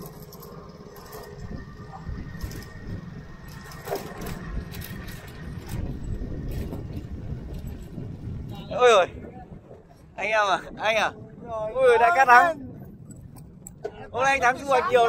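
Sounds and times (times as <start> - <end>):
rattles and clicks: 0.0 - 8.8
motorbike engine rumbling: 0.0 - 11.6.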